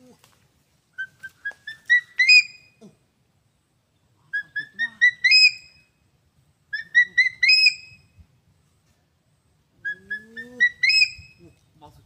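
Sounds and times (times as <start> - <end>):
eagle calling: 0.9 - 3.0, 4.2 - 6.0, 6.6 - 8.2, 9.8 - 11.5.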